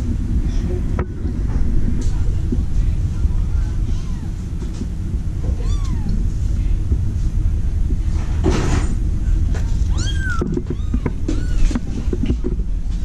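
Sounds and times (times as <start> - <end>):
steady low rumble: 0.0 - 13.0
cat mewing: 5.5 - 6.2, 9.9 - 11.8.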